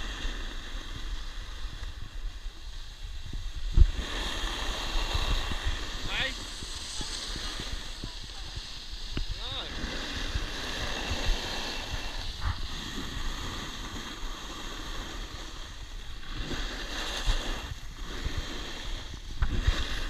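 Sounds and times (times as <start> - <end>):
skis scraping on snow: 0.0 - 20.0
wind rushing over microphone: 0.0 - 20.0.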